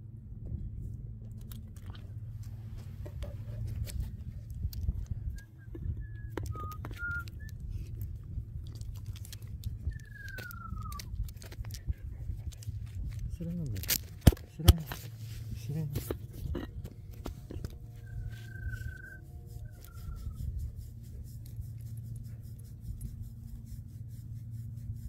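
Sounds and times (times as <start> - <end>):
wind buffeting microphone: 1.9 - 14.6, 15.5 - 21.4
person whistling: 5.3 - 7.6, 9.9 - 11.1, 18.0 - 20.4.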